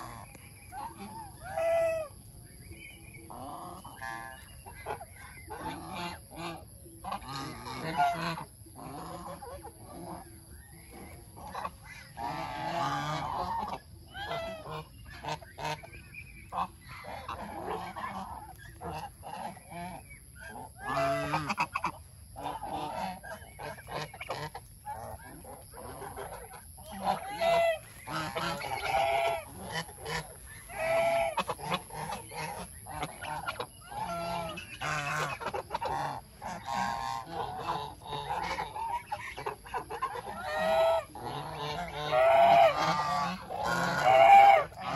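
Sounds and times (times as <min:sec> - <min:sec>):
geese honking: 0:00.0 - 0:44.9.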